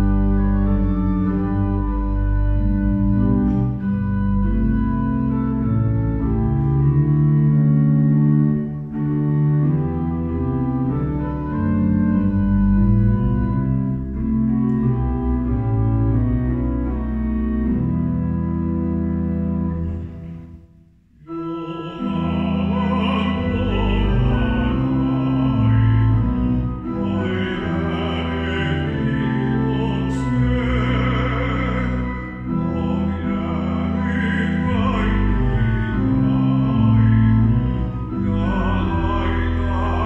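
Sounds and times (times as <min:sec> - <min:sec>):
pipe organ playing hymn chords: 0:00.0 - 0:40.0
person singing: 0:21.2 - 0:40.0.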